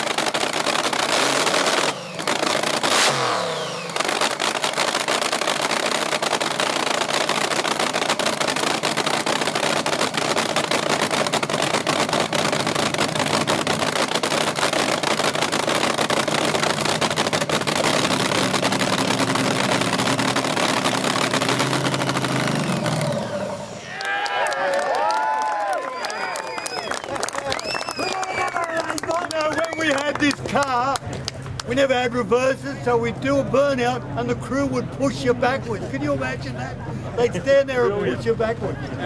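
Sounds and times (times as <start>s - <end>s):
drag racing engine crackling idle: 0.0s - 23.8s.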